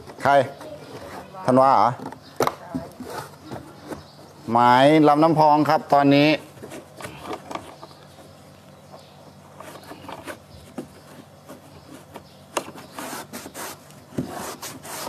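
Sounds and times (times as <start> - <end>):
rag rubbing plastic hull: 9.4 - 15.0.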